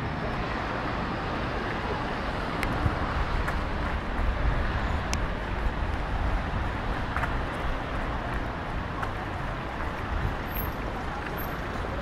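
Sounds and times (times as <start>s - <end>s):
distant traffic rumble: 0.0s - 12.0s.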